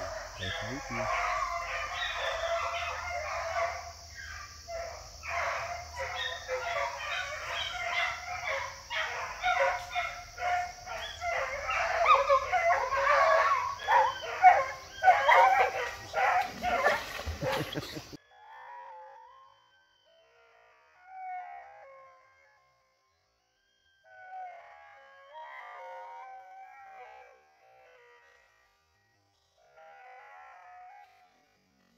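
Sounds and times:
hunting dogs baying and barking: 0.0s - 18.2s.

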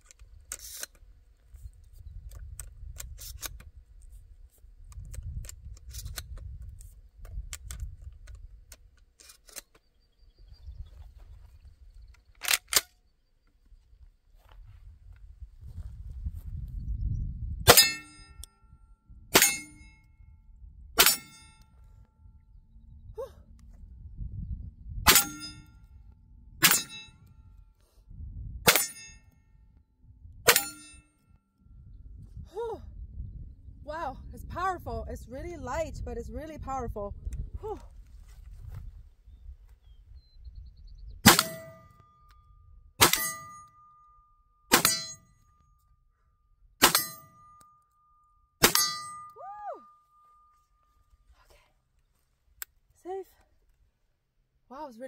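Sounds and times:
metallic ring: 17.7s - 20.1s, 25.1s - 25.8s, 26.6s - 27.3s, 30.5s - 31.2s, 43.0s - 46.1s, 46.8s - 51.0s
shotgun shots: 41.2s - 41.8s.

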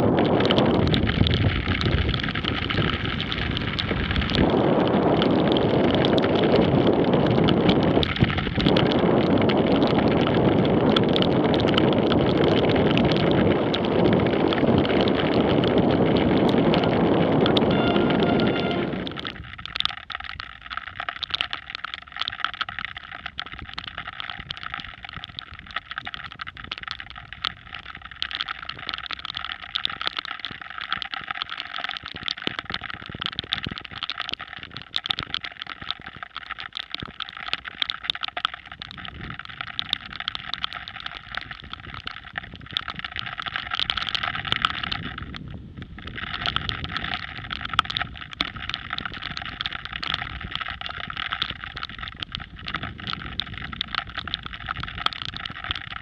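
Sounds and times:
wind rushing over microphone: 0.0s - 19.8s, 38.8s - 56.0s
light irregular ticking: 0.4s - 56.0s.

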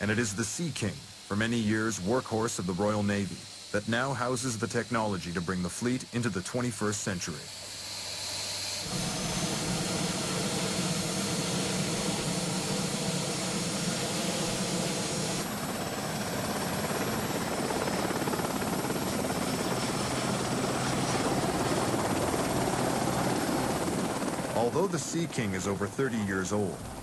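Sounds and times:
high whine: 0.0s - 26.2s
helicopter engines and rotor: 0.0s - 27.0s.

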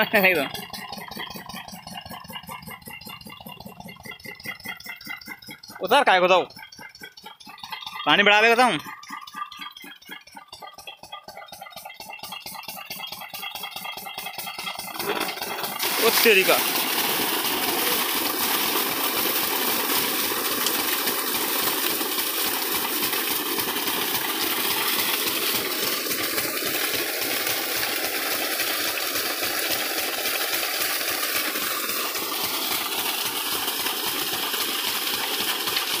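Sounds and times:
diesel engine running: 0.0s - 22.0s
water gushing and splashing: 0.0s - 36.0s.

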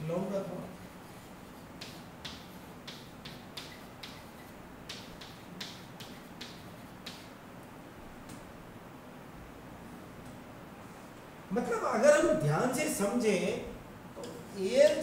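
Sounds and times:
pen tapping on screen: 1.8s - 7.3s.

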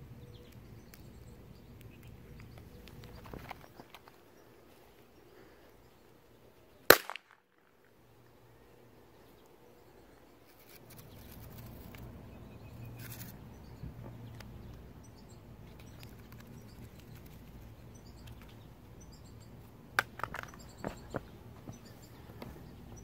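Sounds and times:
faint bird chirps: 8.2s - 19.7s, 20.4s - 23.0s
sharp clicks: 14.0s - 19.4s.

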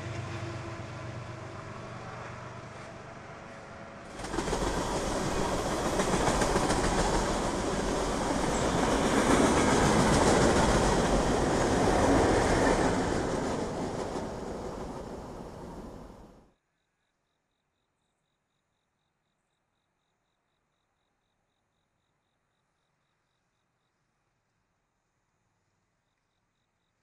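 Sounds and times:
freight train rolling past: 0.0s - 16.5s
wheels clattering on rails: 4.1s - 16.3s.

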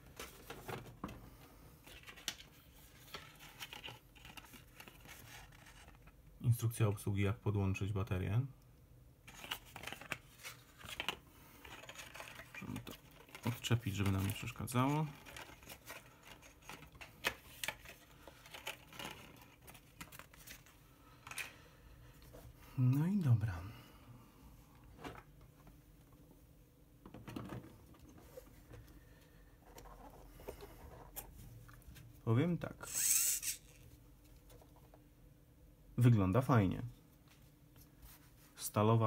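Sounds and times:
cardboard and paper rustling: 0.0s - 6.2s, 9.3s - 21.5s.

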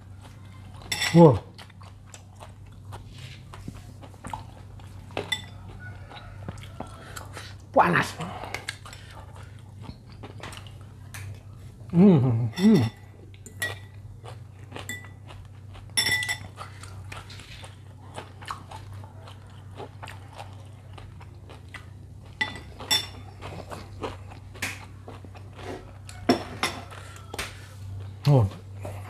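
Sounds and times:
biting and chewing: 0.0s - 7.6s, 13.5s - 29.0s
cutlery clinking against bowl: 0.8s - 1.2s, 5.1s - 5.6s, 12.5s - 14.0s, 15.9s - 16.6s, 22.4s - 23.2s, 26.2s - 27.5s.

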